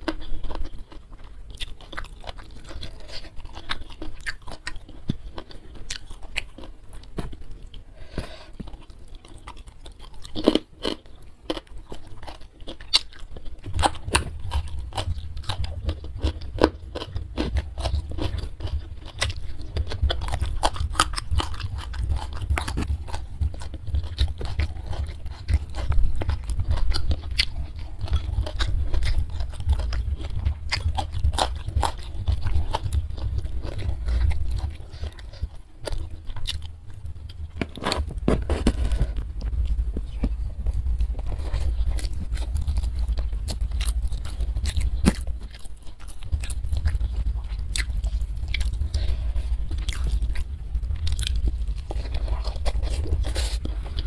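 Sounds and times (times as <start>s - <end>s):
chewing and biting food: 0.0s - 54.0s
low rumble: 13.6s - 54.0s.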